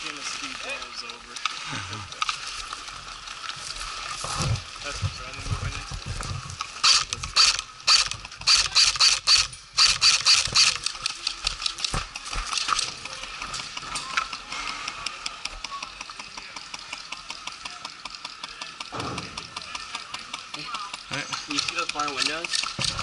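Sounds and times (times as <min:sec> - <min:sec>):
airsoft guns firing: 0:18.9 - 0:23.0.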